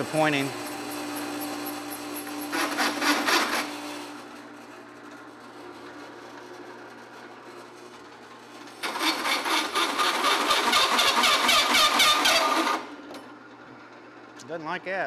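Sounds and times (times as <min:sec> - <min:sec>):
drill press motor humming: 0:00.0 - 0:14.4
hole saw screeching through steel: 0:08.8 - 0:12.8.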